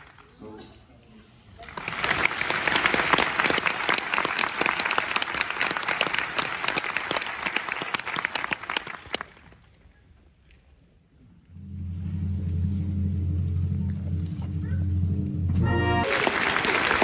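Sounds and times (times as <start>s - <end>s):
audience applauding: 1.6s - 9.8s, 16.0s - 17.0s.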